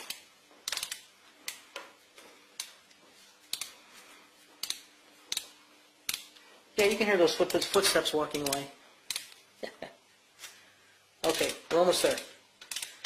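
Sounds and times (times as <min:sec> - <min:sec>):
hand ratchet clicking: 0:00.0 - 0:01.7, 0:03.5 - 0:03.8, 0:04.6 - 0:05.5, 0:06.1 - 0:09.4, 0:11.3 - 0:13.0
faint steady hum: 0:00.0 - 0:13.0.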